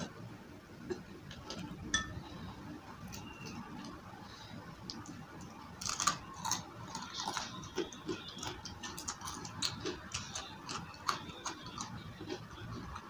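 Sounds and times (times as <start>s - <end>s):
chewing crunchy fried food: 3.0s - 13.0s.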